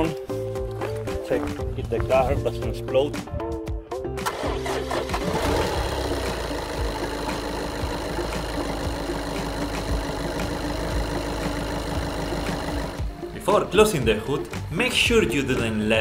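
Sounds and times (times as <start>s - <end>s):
diesel engine idling: 4.2s - 13.7s.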